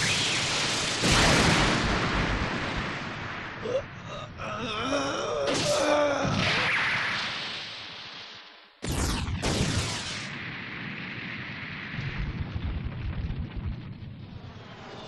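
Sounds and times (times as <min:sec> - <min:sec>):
cartoon explosion: 0:00.0 - 0:04.0, 0:05.4 - 0:07.9, 0:08.8 - 0:13.8
voice groaning: 0:03.6 - 0:06.5.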